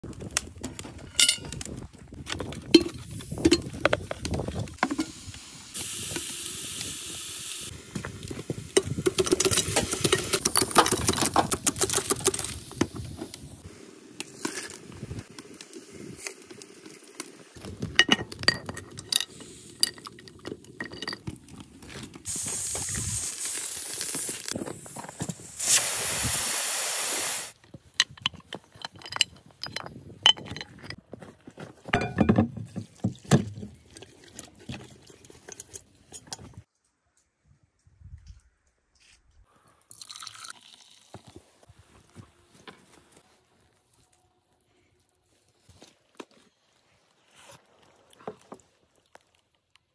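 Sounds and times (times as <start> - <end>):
steady steam hiss: 4.8 - 8.8, 22.3 - 27.6
meat sizzling: 5.4 - 7.7, 22.3 - 24.6
metal pot and lid clanking: 32.0 - 32.4.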